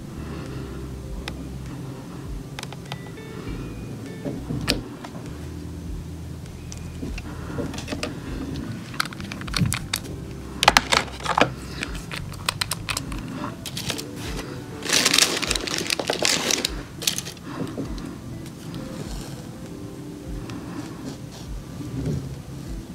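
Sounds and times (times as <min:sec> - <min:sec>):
quiet background music: 0:00.0 - 0:22.9
rustling handling noise: 0:06.4 - 0:22.9.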